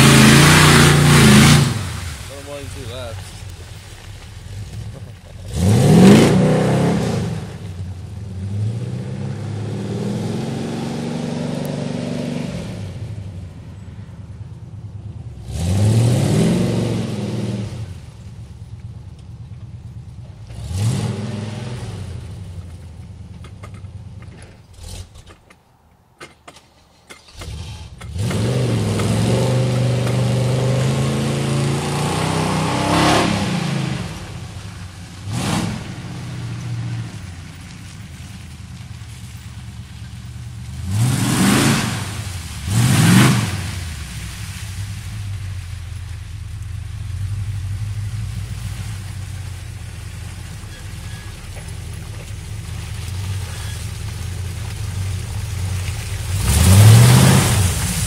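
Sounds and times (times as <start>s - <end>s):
engine revving: 0.0s - 3.4s, 5.4s - 13.1s, 15.4s - 18.0s, 20.5s - 22.2s, 27.3s - 37.6s, 40.7s - 43.9s, 50.6s - 58.0s.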